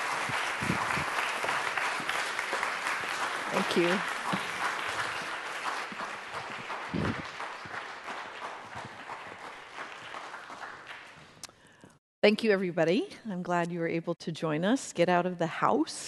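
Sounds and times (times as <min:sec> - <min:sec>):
audience applauding: 0:00.0 - 0:11.5.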